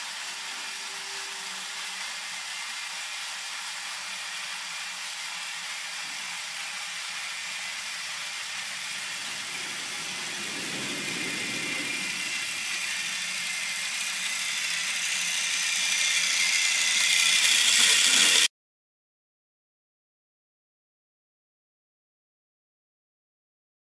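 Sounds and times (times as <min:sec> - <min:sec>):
toy train motor running on track: 0:00.0 - 0:18.5.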